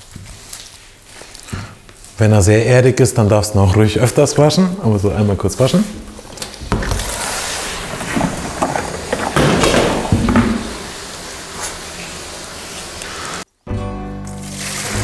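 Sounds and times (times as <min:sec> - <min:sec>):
tap water running into bowl: 0:06.0 - 0:11.4.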